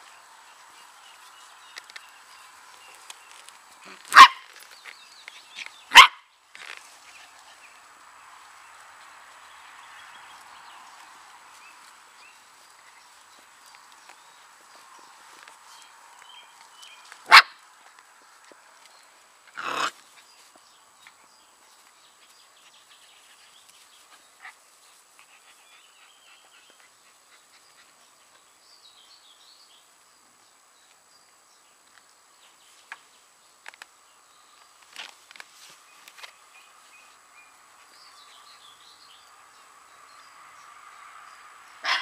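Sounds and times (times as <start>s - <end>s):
small rustles: 0.0s - 25.6s, 31.8s - 38.8s
puppy barking: 3.9s - 4.5s, 5.9s - 6.3s, 17.3s - 17.6s
puppy yipping: 4.1s - 4.4s, 5.9s - 6.2s.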